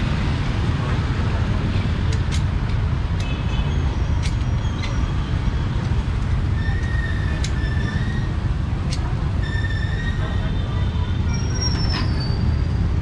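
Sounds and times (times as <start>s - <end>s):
traffic rumble: 0.0s - 13.0s
sharp clicks and knocks: 1.8s - 3.4s.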